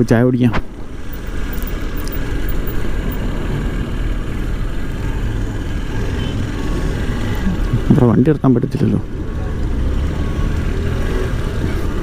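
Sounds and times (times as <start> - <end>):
road noise rush: 0.0 - 12.0.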